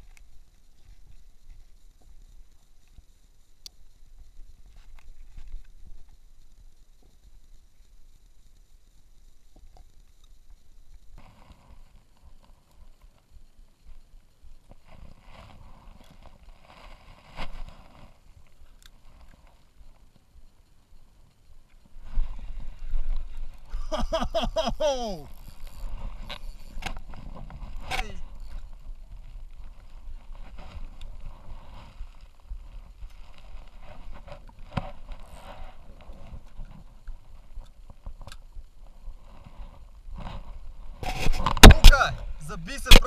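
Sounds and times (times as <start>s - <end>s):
fishing reel clicks: 25.3s - 27.0s.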